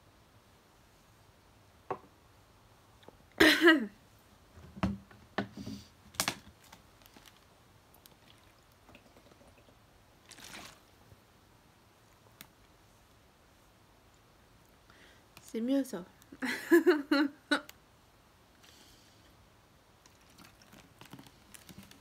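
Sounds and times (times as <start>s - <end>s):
drinking from plastic bottle: 8.0s - 10.8s.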